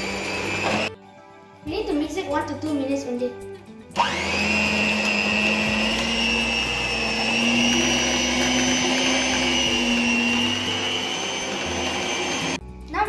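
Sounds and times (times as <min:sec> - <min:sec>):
stand mixer motor whine: 0:00.0 - 0:01.0, 0:04.0 - 0:12.6.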